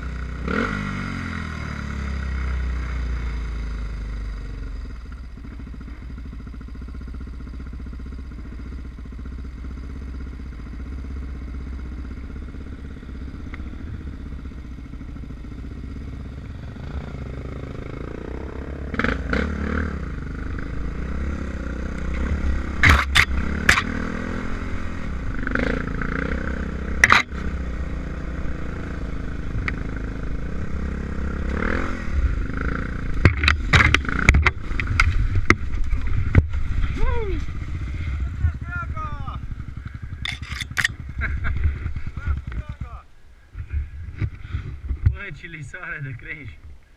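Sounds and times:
motorcycle engine revving: 0.0 - 45.5
knocks and clatter of bike: 22.0 - 24.0, 27.0 - 27.4, 33.2 - 37.0.

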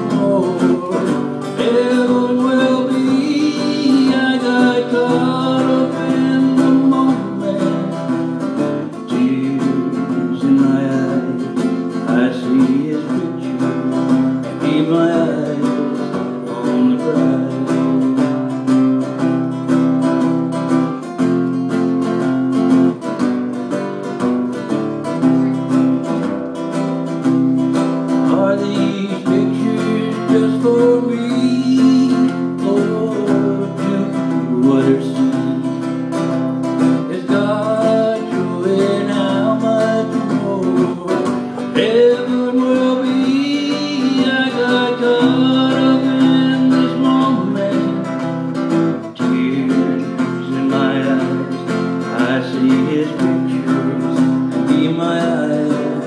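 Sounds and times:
man singing: 0.0 - 23.2, 23.8 - 56.0
acoustic guitar strumming chords: 0.0 - 56.0.

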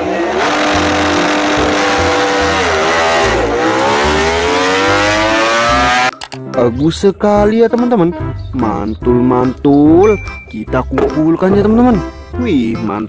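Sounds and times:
racing motorcycle engine revving: 0.0 - 6.1.

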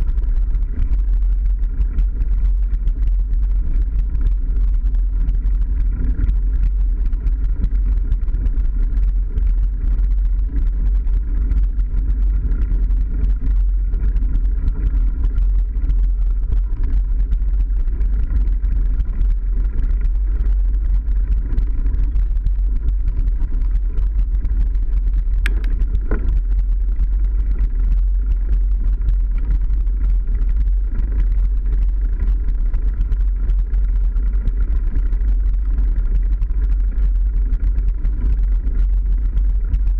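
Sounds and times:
wind rumble on microphone: 0.0 - 39.9
small clicks: 20.9 - 31.5.

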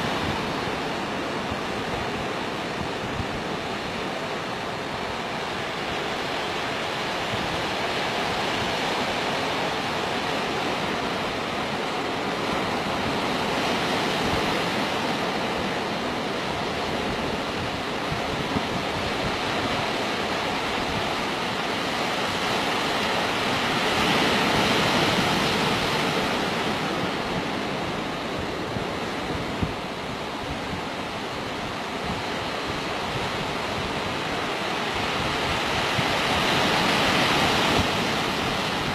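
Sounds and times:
sea surf washing on beach: 0.0 - 38.9.

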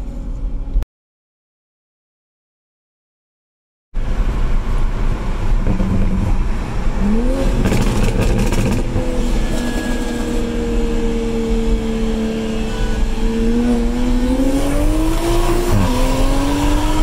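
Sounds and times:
road noise rumble: 0.0 - 0.8, 4.0 - 17.0
car engine accelerating: 4.0 - 17.0
sharp exhaust cracks: 7.6 - 10.3.

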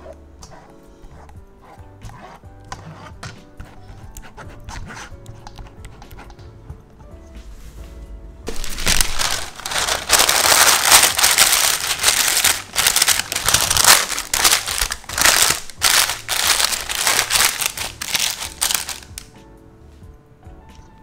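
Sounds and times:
parchment paper crinkling: 8.5 - 19.3.

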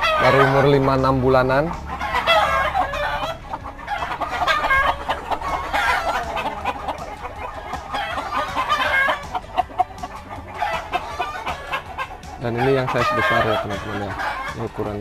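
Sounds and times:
chickens clucking: 0.0 - 15.0.

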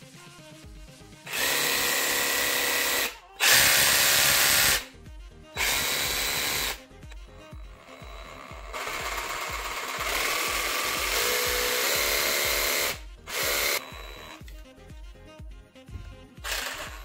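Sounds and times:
background music with steady beat: 0.0 - 17.0
cordless jigsaw running: 1.3 - 4.9, 5.6 - 6.8, 7.5 - 14.4, 16.4 - 17.0.

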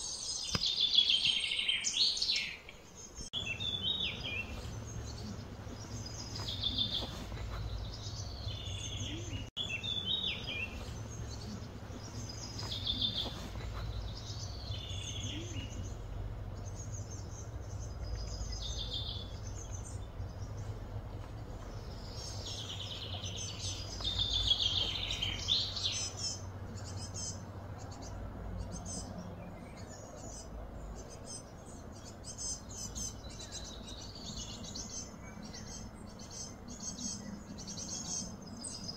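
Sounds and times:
birds calling and chirping: 0.0 - 38.9
low background hum: 2.9 - 38.9.

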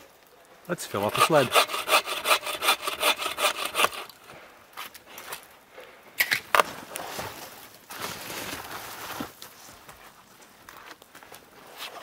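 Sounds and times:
bow saw cutting wood: 1.0 - 4.2.

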